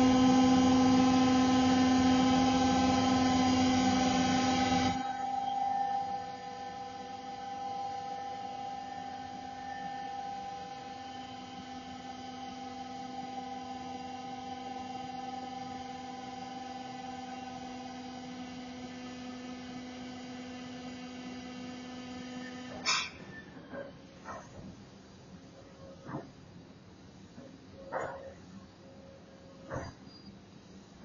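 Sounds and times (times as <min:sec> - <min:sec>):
mixer motor humming: 0:00.0 - 0:22.7.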